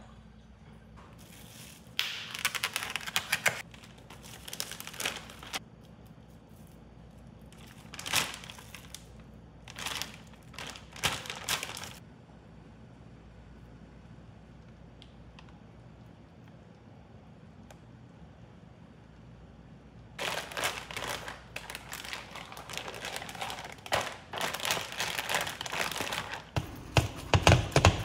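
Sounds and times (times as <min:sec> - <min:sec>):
packaging crinkling and rustling: 0:01.2 - 0:05.6, 0:07.4 - 0:12.0, 0:20.2 - 0:28.0.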